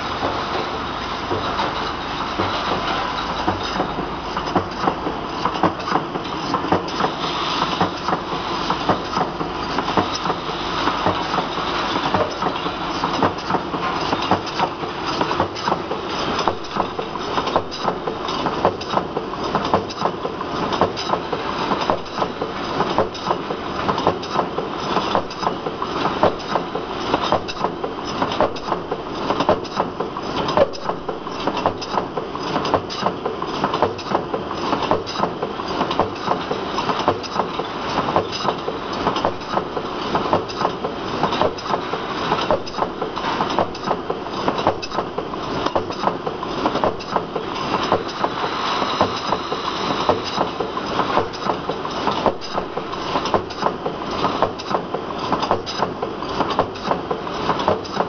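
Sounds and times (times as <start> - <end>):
printing machine running: 0.0 - 58.0
cans clattering on conveyor: 1.3 - 58.0.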